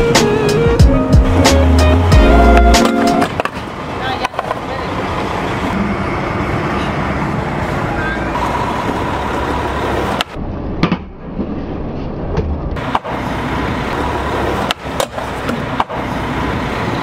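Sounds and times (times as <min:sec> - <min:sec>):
skateboard wheels rolling on concrete: 0:00.0 - 0:17.0
street traffic: 0:00.0 - 0:17.0
skateboard clacks: 0:02.4 - 0:05.4, 0:08.4 - 0:11.1, 0:12.4 - 0:13.2, 0:14.3 - 0:16.1.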